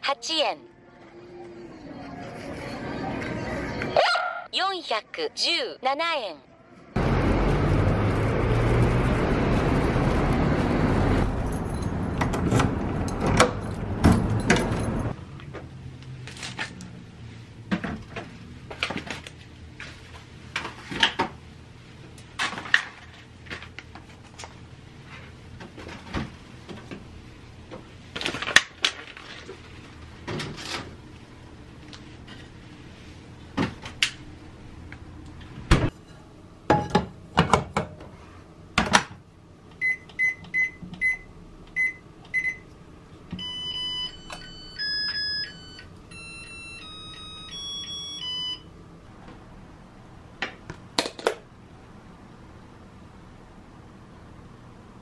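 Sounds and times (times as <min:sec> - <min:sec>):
outdoor noise: 0:00.7 - 0:43.5.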